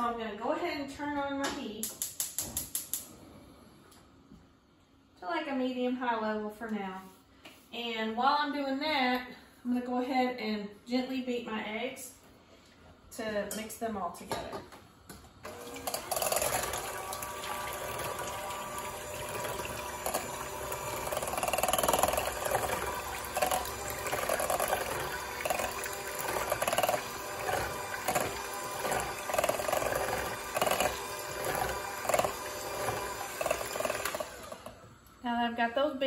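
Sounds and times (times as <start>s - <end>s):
electric hand mixer whisking: 15.5s - 34.9s.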